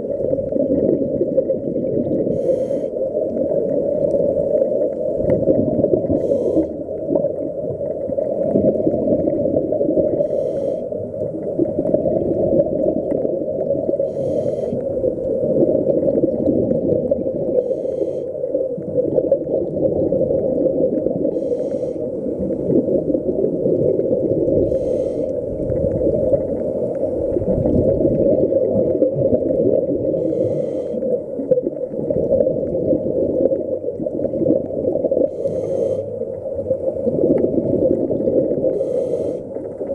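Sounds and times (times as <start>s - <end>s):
muffled underwater rush: 0.0s - 39.9s
scuba regulator breaths: 2.3s - 3.1s, 6.1s - 6.8s, 10.1s - 11.0s, 14.0s - 15.0s, 17.6s - 18.4s, 21.3s - 22.6s, 24.6s - 25.5s, 30.2s - 31.4s, 35.2s - 36.2s, 38.7s - 39.6s.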